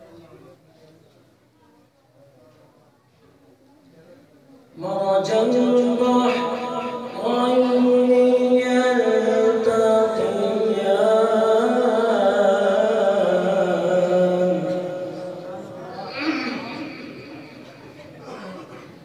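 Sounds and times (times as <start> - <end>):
man chanting melodically: 4.8 - 17.8.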